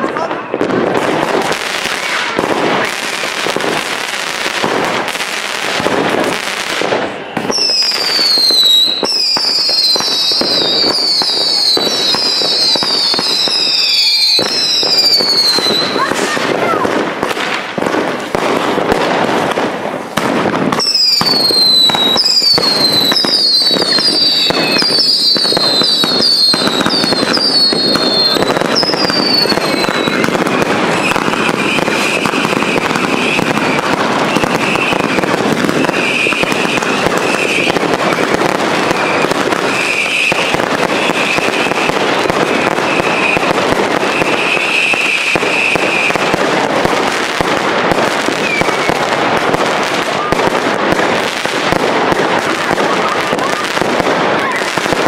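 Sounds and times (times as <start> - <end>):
firework fountain hissing: 0.0 - 55.0
falling firework whistles: 6.2 - 17.0, 20.7 - 50.4.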